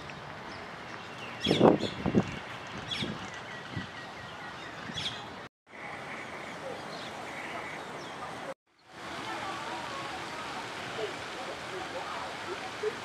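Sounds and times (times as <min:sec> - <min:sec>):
birds chirping and calling: 0:01.0 - 0:02.1, 0:02.9 - 0:05.4.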